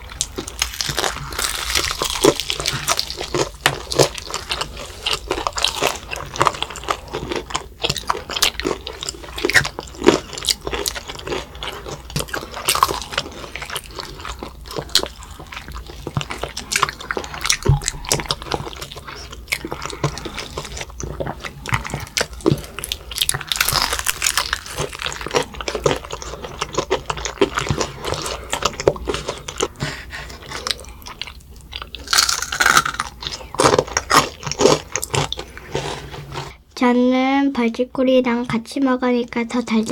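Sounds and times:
crunching fried chicken: 0:00.0 - 0:36.5
wet mouth sounds: 0:12.0 - 0:35.8.

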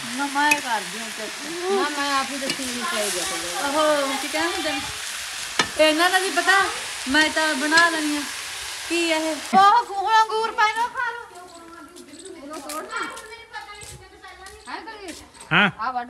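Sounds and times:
food sizzling in a pot: 0:00.0 - 0:13.3
voices talking: 0:00.0 - 0:16.0
ladle stirring pot: 0:01.8 - 0:03.6.

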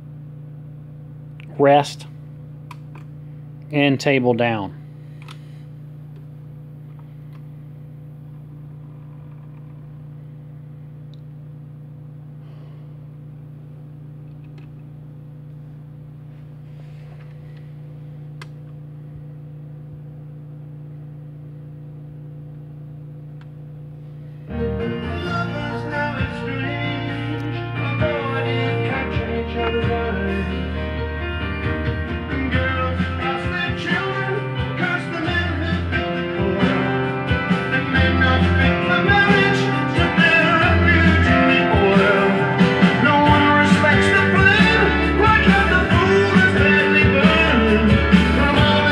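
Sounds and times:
low hum: 0:04.7 - 0:48.9
guitar music through speakers: 0:24.4 - 0:48.9
rock song with singing: 0:24.5 - 0:48.9.

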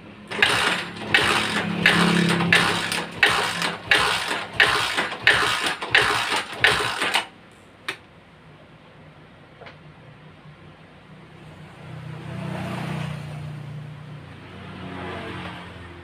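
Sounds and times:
motorcycle engine cranking chuffs: 0:00.3 - 0:07.3.

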